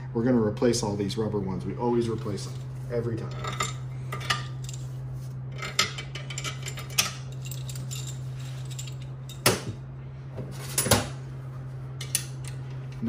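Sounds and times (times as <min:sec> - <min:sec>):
steady low hum: 0:00.0 - 0:13.0
bolts clinking on metal: 0:03.3 - 0:04.9, 0:05.6 - 0:09.7.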